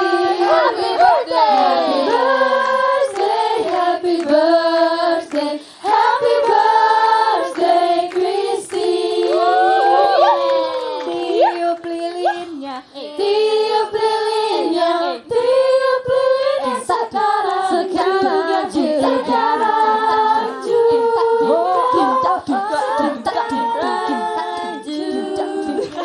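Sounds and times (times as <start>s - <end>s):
women singing together: 0.0s - 26.0s.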